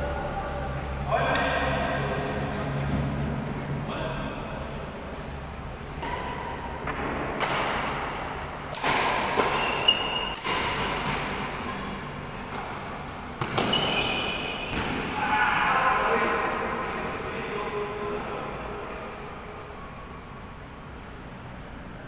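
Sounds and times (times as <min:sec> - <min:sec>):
rackets hitting shuttlecock: 0:01.2 - 0:02.0, 0:05.1 - 0:15.1
short shoe squeaks: 0:09.5 - 0:10.4, 0:13.6 - 0:15.2.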